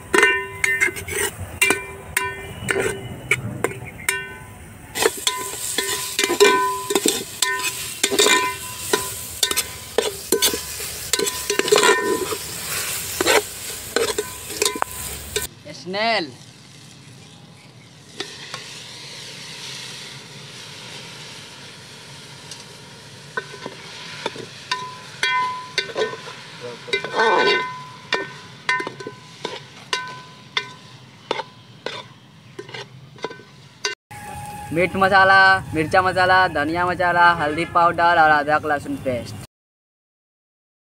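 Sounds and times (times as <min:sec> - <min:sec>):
spoon scraping and knocking pot: 0:00.0 - 0:04.4, 0:05.0 - 0:12.5, 0:13.1 - 0:15.5, 0:23.4 - 0:26.3, 0:26.9 - 0:33.6
onion and tomato sizzling in oil: 0:00.0 - 0:36.3.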